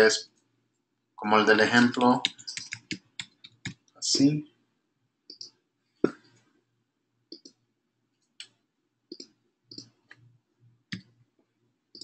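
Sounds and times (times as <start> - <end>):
keyboard and mouse clicks: 2.0 - 3.9, 5.3 - 6.2, 7.3 - 7.6, 8.4 - 10.2.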